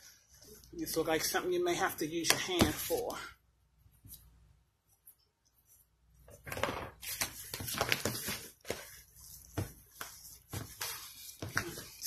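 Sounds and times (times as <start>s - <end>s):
hand kneading sticky dough: 7.0s - 12.0s.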